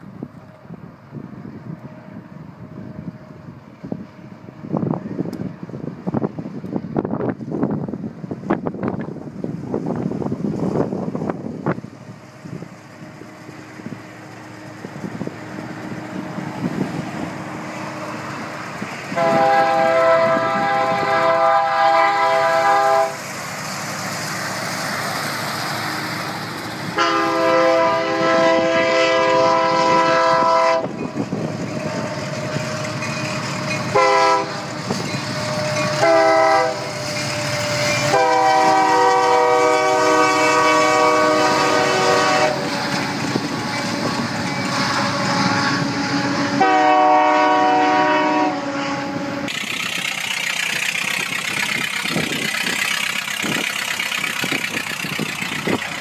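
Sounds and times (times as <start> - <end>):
train rumble: 0.0 - 56.0
locomotive air horn chord: 19.1 - 23.2, 26.9 - 31.0, 33.9 - 34.7, 35.4 - 49.7.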